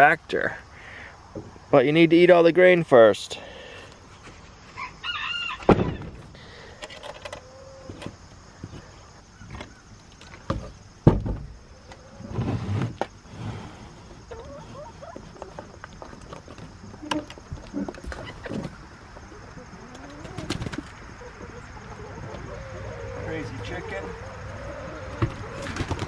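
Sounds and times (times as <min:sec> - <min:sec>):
knocks and thumps on wood: 0:10.5 - 0:11.5
faint hen clucks: 0:14.2 - 0:15.8, 0:17.0 - 0:25.8.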